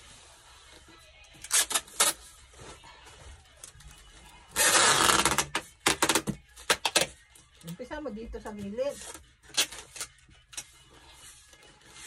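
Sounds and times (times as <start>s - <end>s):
packing tape rasping: 1.4s - 2.5s, 4.5s - 7.7s, 8.9s - 10.8s.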